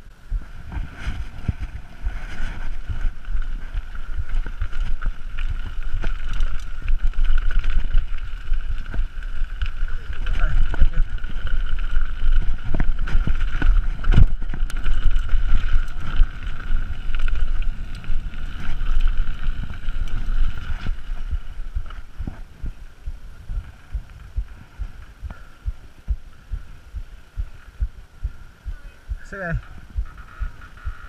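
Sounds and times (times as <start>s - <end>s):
wind rumbling on microphone: 0.0s - 31.0s
bike knocks and rattles: 0.7s - 25.5s.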